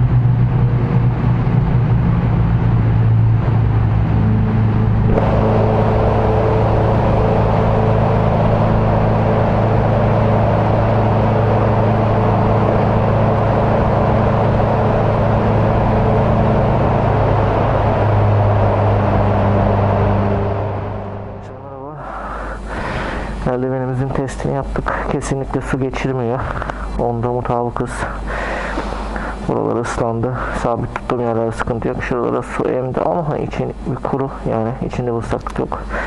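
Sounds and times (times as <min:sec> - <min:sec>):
motorcycle engine cruising: 0:00.0 - 0:21.9.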